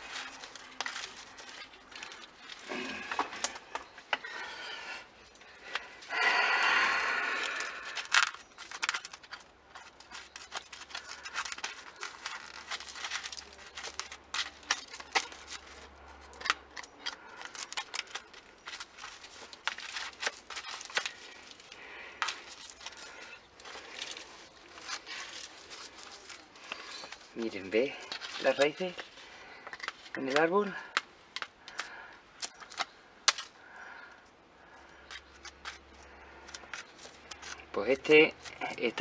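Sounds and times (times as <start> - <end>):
soil scratching against plastic pot: 7.3 - 31.8.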